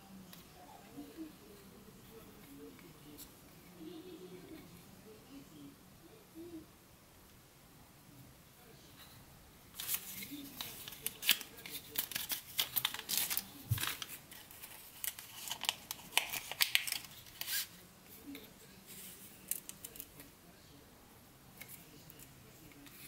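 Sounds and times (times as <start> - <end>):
plastic packaging crinkling: 9.8 - 17.7.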